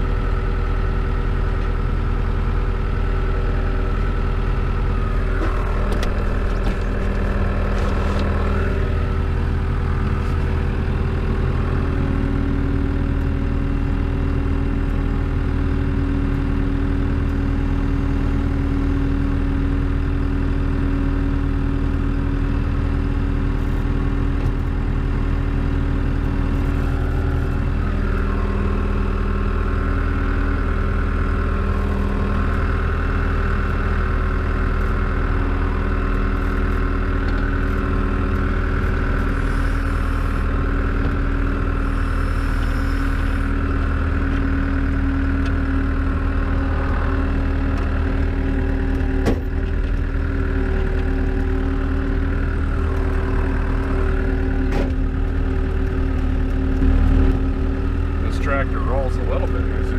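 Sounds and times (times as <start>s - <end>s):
high steady whine: 0.0s - 13.4s, 25.8s - 59.9s
tractor engine running: 0.0s - 59.9s.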